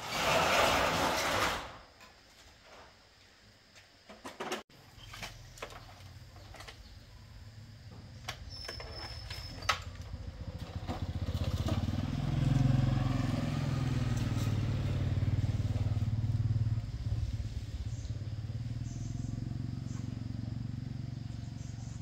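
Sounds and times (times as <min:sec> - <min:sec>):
small motorcycle engine running: 0:08.7 - 0:22.0.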